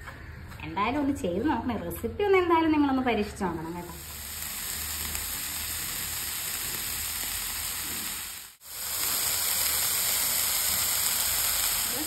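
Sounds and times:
food sizzling in a frying pan: 3.8s - 12.0s.

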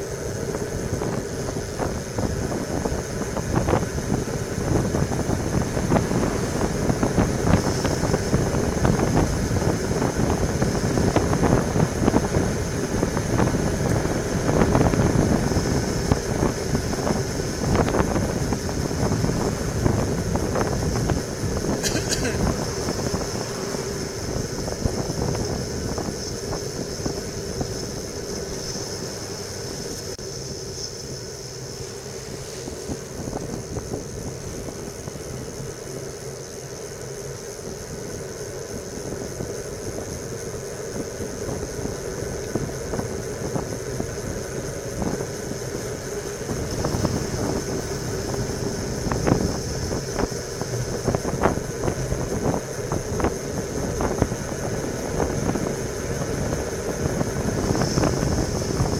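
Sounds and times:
wind on microphone: 0.0s - 30.2s, 32.0s - 58.9s
bicycle tyre and road noise: 0.0s - 58.9s.

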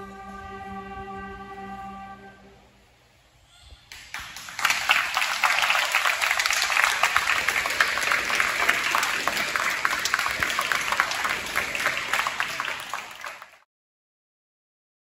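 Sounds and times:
audience applauding: 3.9s - 13.6s.

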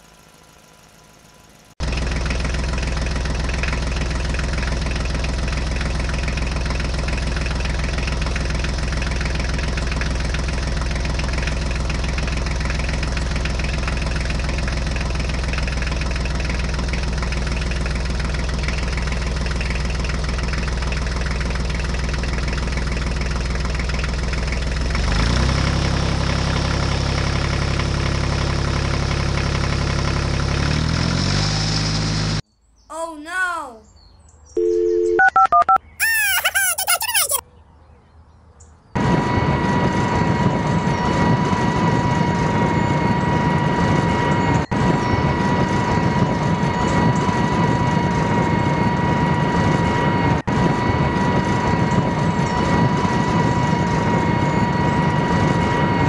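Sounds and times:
tractor engine idling: 0.0s - 30.9s.

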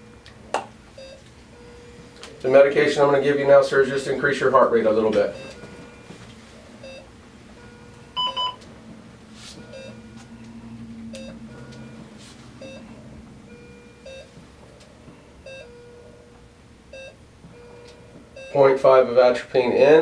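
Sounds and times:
cardiac monitor beeping: 0.0s - 20.0s
louder higher beeps: 5.3s - 5.7s, 7.7s - 8.6s, 12.6s - 12.9s.

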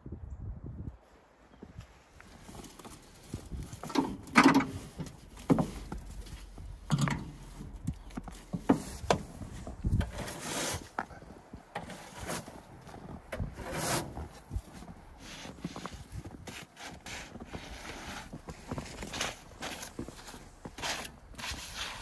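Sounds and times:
brush sweeping snow off metal: 8.6s - 11.0s, 11.8s - 12.6s, 13.4s - 14.5s, 15.2s - 22.0s.

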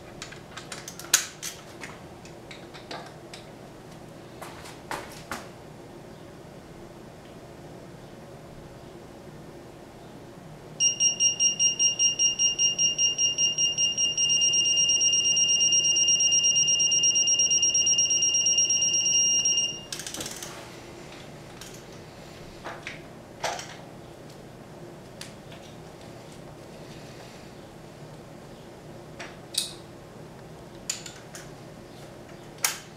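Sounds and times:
torque wrench beeping: 10.8s - 20.0s.

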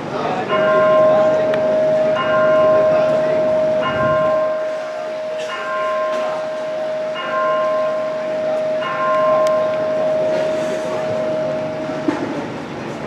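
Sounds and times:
steady humming note: 0.0s - 13.0s
electronic clock bell striking: 0.5s - 12.1s.

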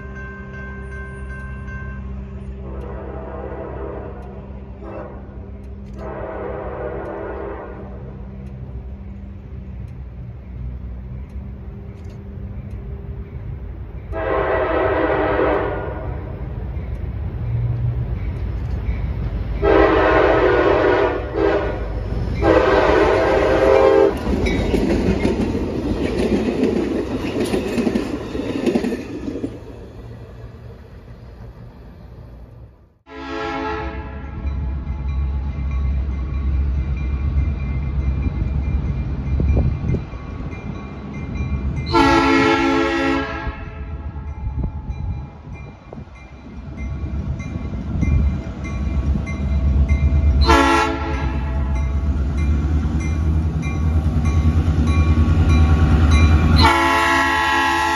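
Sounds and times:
train rumbling and clattering past: 0.0s - 57.9s
diesel locomotive horn blasts: 2.4s - 9.0s, 14.1s - 16.4s, 19.6s - 24.4s, 33.1s - 34.7s, 41.8s - 44.7s, 50.1s - 52.1s, 55.9s - 57.9s.

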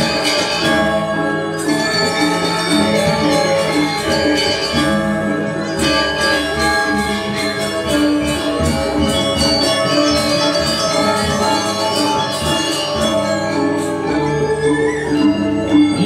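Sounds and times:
metallophones ringing: 0.0s - 16.0s.

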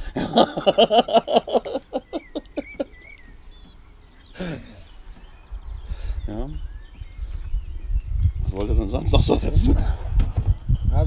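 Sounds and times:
person laughing: 0.0s - 3.1s.

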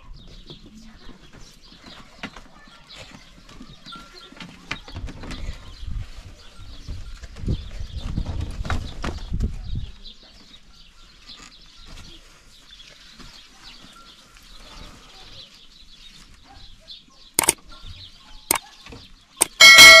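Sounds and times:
sharp clicks: 17.4s - 17.6s, 19.4s - 19.6s
ringing bell chime: 19.4s - 20.0s.

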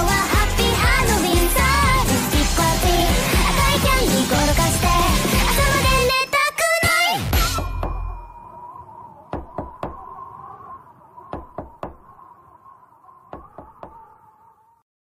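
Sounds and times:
pop song: 0.0s - 8.0s
faint steady tone: 7.6s - 14.8s
quick knocking sound effects: 11.3s - 12.1s.

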